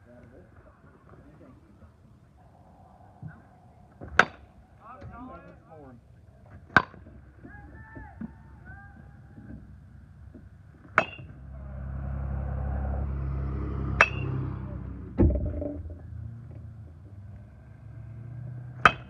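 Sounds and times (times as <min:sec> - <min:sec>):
low rumble: 0:01.7 - 0:05.5, 0:11.3 - 0:17.6
metal bat pinging ball: 0:04.0 - 0:04.6, 0:10.8 - 0:11.4, 0:13.8 - 0:14.5, 0:18.8 - 0:19.0.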